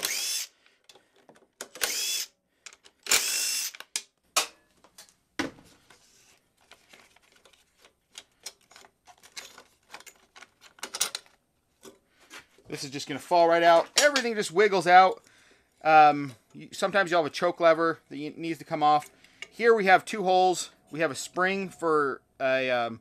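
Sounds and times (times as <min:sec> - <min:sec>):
impact driver spinning: 0:00.0 - 0:00.6, 0:01.2 - 0:02.3, 0:02.9 - 0:04.0
plastic parts clicking and rattling: 0:00.0 - 0:02.0, 0:02.6 - 0:05.2, 0:06.6 - 0:12.0.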